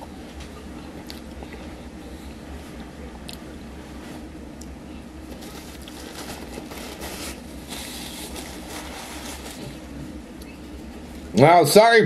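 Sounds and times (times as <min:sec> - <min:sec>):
steady low hum: 0:00.0 - 0:12.0
paper bag crinkling: 0:05.3 - 0:10.0.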